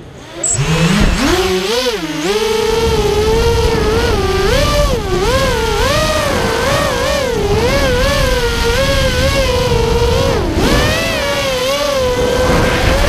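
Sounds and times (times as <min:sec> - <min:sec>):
drone motors whining: 0:00.0 - 0:13.0
low rush of noise: 0:12.0 - 0:13.0.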